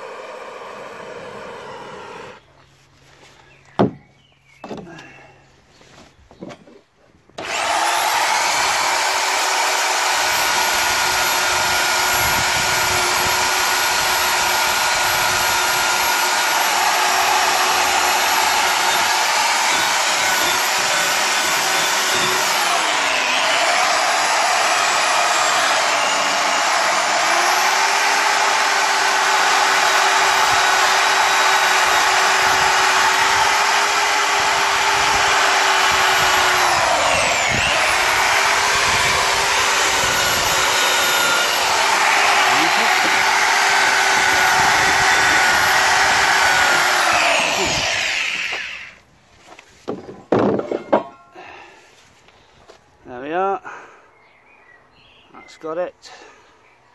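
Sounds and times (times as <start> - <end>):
electric drill wire brush on metal: 7.4 - 49.0.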